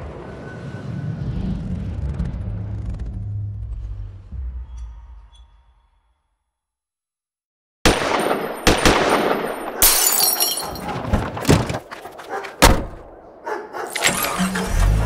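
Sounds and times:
clattering din: 10.3s - 13.1s.

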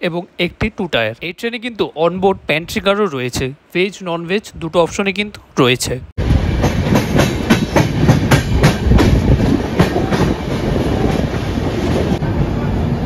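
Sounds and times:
train wheels rumbling on rails: 6.2s - 13.0s
clickety-clack over rail joints: 6.6s - 12.2s.

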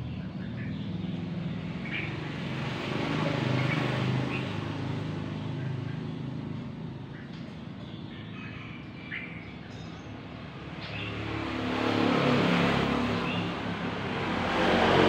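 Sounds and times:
passing vehicle engine: 0.0s - 9.0s, 10.1s - 15.0s
bird chirping: 0.0s - 11.4s.

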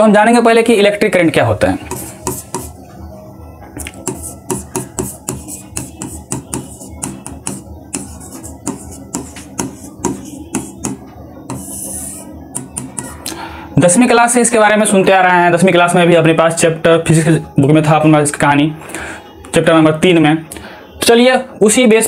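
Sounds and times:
stylus tapping on screen: 1.9s - 2.8s, 3.8s - 13.4s.

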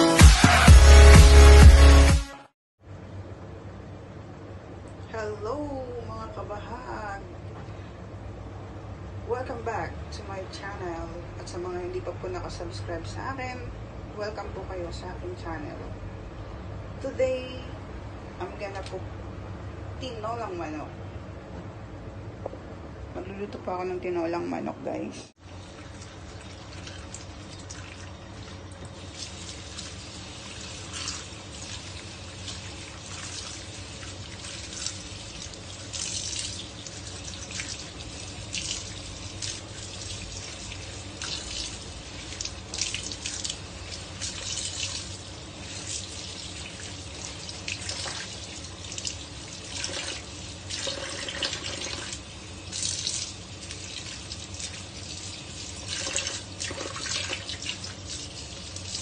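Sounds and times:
water splashing: 25.4s - 59.0s.

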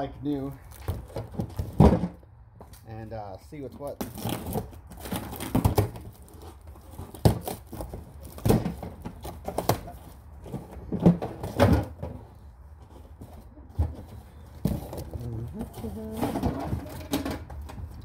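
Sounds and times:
plastic knocks and clatters: 7.0s - 12.2s.

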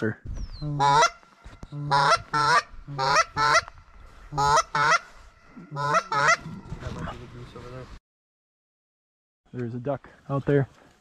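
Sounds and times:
goose-like honking: 0.7s - 1.2s, 1.8s - 3.7s, 4.3s - 6.6s.

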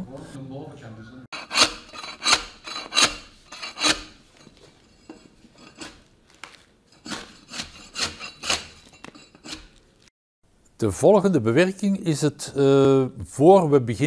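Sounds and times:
spade scraping bark off trunk: 1.4s - 4.2s, 7.0s - 9.8s.

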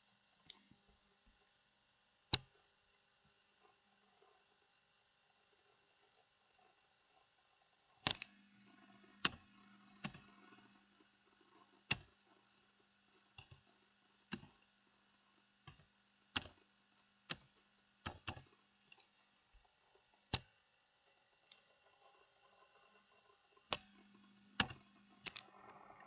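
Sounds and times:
computer keyboard key clicks: 15.6s - 16.6s, 17.3s - 19.1s, 24.6s - 25.4s.

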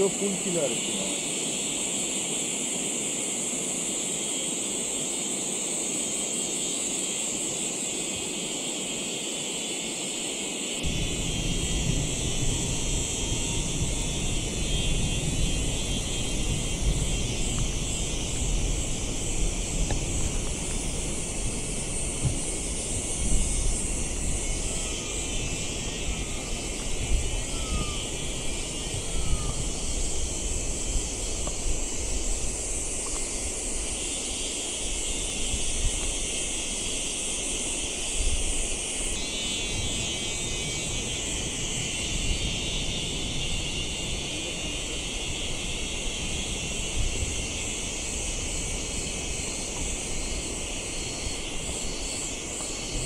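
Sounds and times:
insects chirring: 0.0s - 53.0s
wind rumble on microphone: 10.8s - 53.0s.

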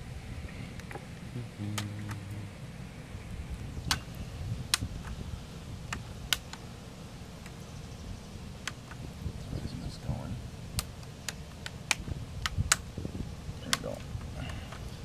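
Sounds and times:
plastic clips snapping: 5.9s - 6.6s, 10.8s - 12.8s.

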